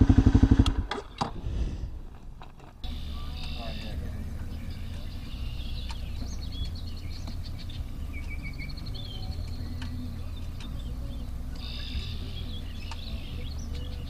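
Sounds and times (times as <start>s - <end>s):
steady low rumble: 0.0s - 14.0s
songbirds singing: 2.8s - 14.0s.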